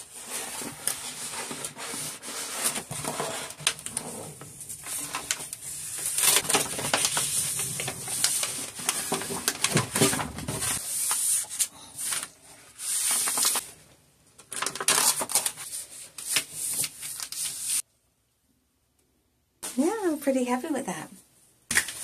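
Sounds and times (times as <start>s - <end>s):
palm rubbing wallpaper: 0.0s - 13.6s
paper backing crackling: 0.1s - 13.7s.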